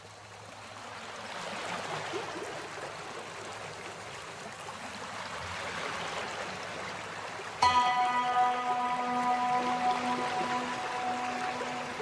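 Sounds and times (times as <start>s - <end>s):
waterfall rushing: 7.6s - 12.0s.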